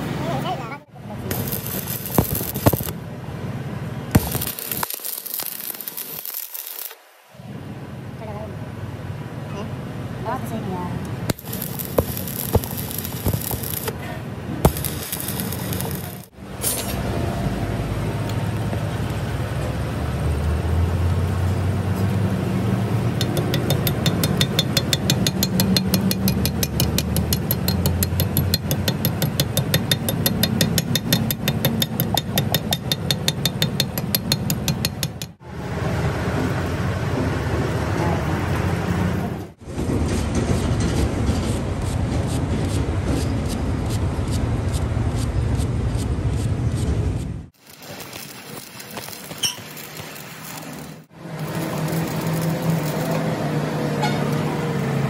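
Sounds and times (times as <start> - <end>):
wire brush scrubbing metal: 1.3 - 2.9, 11.3 - 13.9, 14.6 - 17.0, 23.2 - 35.3, 47.7 - 53.4.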